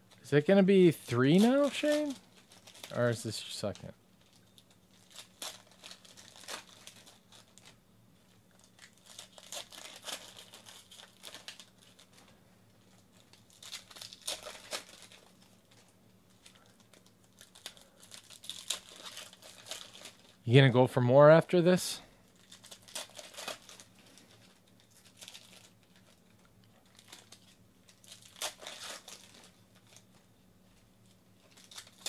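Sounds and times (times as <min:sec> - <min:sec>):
foil wrappers tearing and crinkling: 0:00.1 - 0:20.5, 0:22.2 - 0:30.3, 0:31.0 - 0:32.0.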